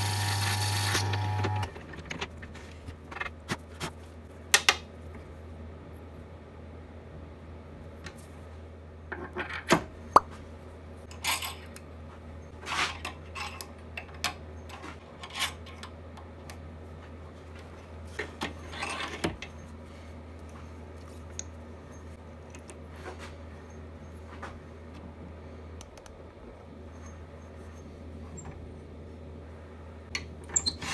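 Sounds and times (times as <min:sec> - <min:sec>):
metal parts clicking and clinking: 0:11.1 - 0:11.8, 0:12.9 - 0:15.9.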